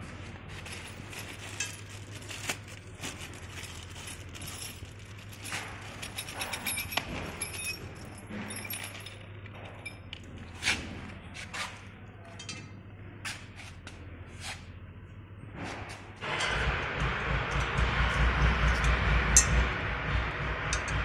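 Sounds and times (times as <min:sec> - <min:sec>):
steady low hum: 0:00.0 - 0:21.0
metal hardware clinking: 0:00.5 - 0:10.2.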